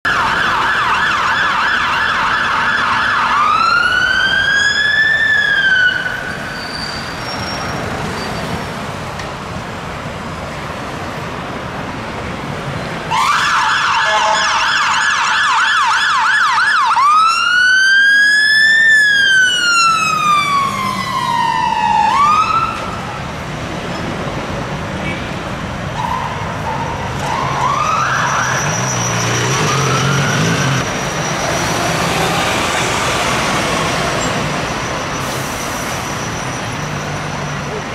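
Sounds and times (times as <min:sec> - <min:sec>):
city traffic: 0:00.0 - 0:37.9
electronic siren yelp and wail: 0:00.1 - 0:06.3, 0:13.1 - 0:23.0, 0:26.0 - 0:31.9.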